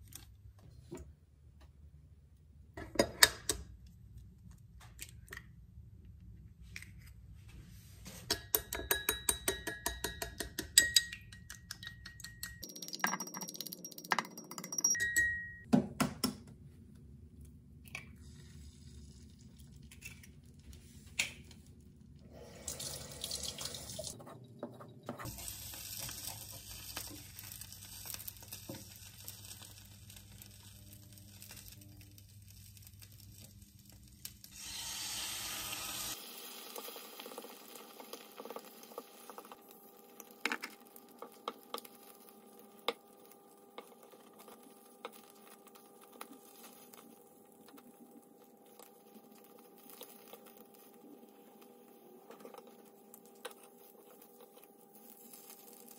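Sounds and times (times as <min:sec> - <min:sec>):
spatula tapping and scraping pan: 0:08.3 - 0:12.6
eggs sizzling in a pan: 0:25.2 - 0:55.9.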